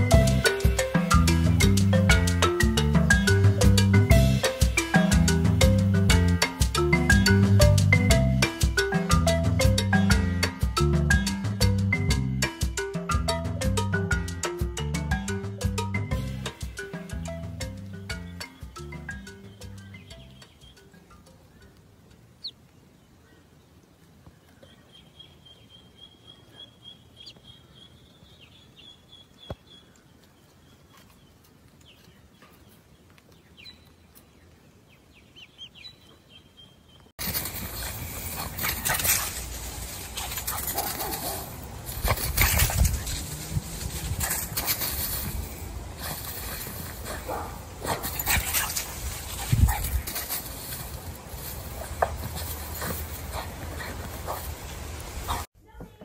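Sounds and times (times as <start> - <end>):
bird chirps and peeps: 17.8 - 21.8, 22.4 - 23.4, 24.3 - 37.1
dog digging in dry dirt: 37.2 - 55.5.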